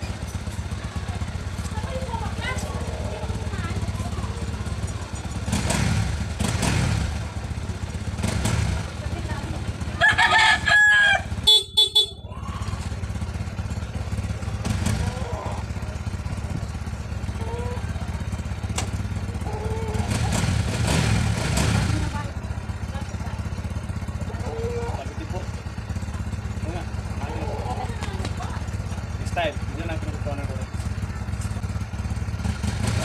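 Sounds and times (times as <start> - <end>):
motorcycle engine idling: 0.0 - 33.0
rooster crowing: 9.9 - 11.5.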